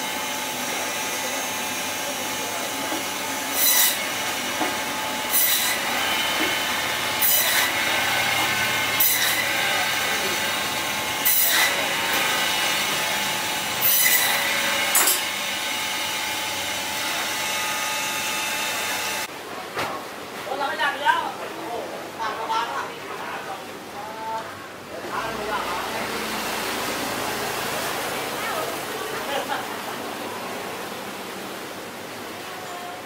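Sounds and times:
band saw whining: 0.0 - 19.3
saw blade rasping through meat: 3.5 - 4.2, 5.3 - 10.2, 11.2 - 13.1, 13.8 - 15.4.

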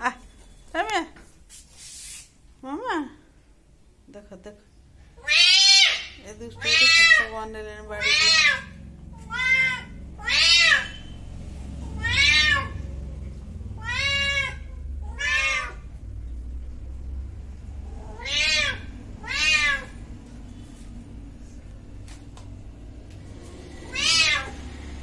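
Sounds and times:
cat meowing: 5.2 - 7.3, 8.0 - 11.1, 11.8 - 12.9, 13.7 - 15.9, 17.9 - 20.0, 23.8 - 24.6.

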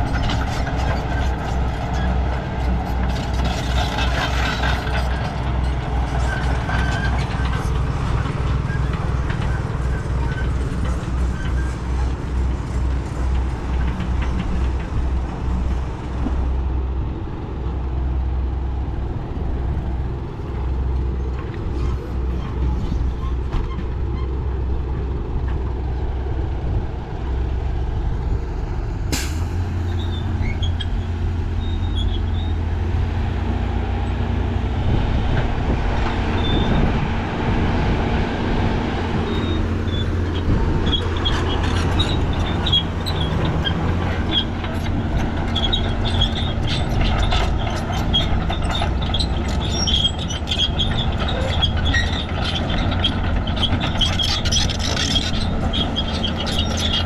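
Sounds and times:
heavy diesel engines droning: 0.0 - 57.0
high metallic squeaks: 29.8 - 32.6, 39.2 - 57.0.

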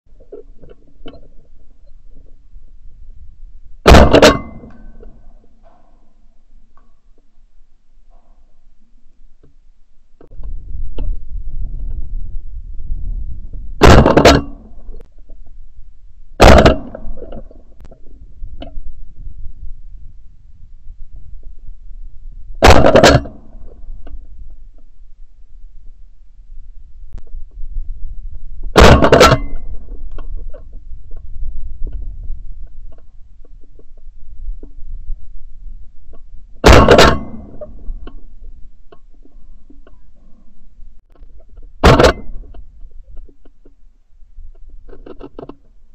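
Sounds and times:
low rumbling wind: 0.1 - 45.9
shotgun blasts: 3.8 - 4.7, 16.4 - 17.1, 22.6 - 23.4, 36.6 - 37.6.

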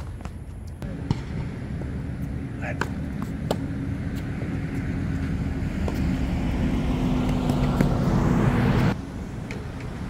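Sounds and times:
ball bounces: 0.0 - 4.5, 5.1 - 6.1
racket striking tennis ball: 2.2 - 3.8.

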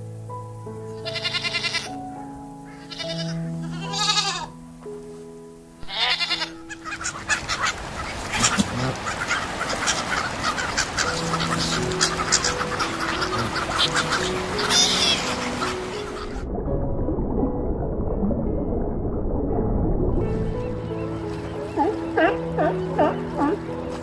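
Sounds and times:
background music: 0.0 - 24.0
goats bleating: 1.0 - 2.0, 2.8 - 4.5, 5.8 - 6.8
seagulls calling: 5.8 - 16.4, 20.4 - 24.0.

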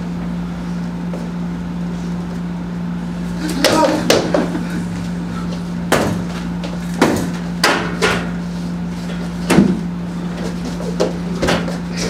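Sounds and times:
steady low hum: 0.0 - 12.0
sharp knocks: 5.9 - 6.3, 7.0 - 8.3.

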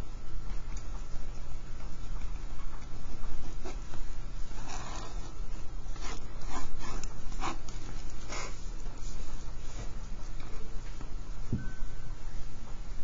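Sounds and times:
steady low hum: 0.0 - 13.0
pen scratching on paper: 4.4 - 8.6.

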